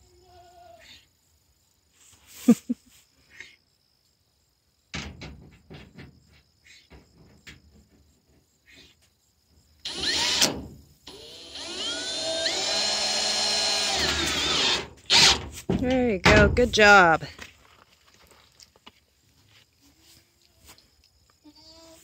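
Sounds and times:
cordless drill whining: 9.9s - 15.4s.

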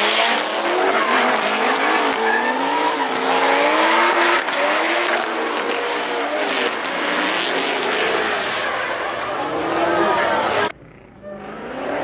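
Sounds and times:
car engines revving: 0.0s - 12.0s
tyres squealing: 0.6s - 4.5s.

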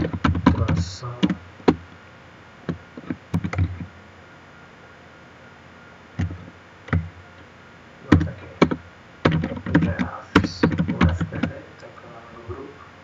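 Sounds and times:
computer keyboard keystrokes: 8.1s - 11.6s.

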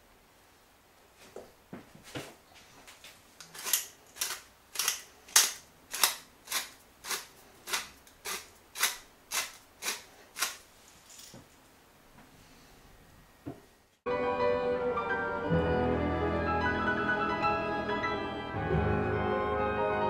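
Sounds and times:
pepper mill grinding: 3.4s - 11.3s.

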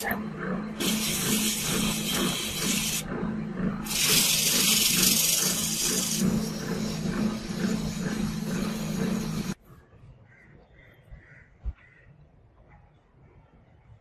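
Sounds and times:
electric motor humming: 0.0s - 9.6s
sandpaper hissing against metal: 0.8s - 3.0s, 3.9s - 9.6s.

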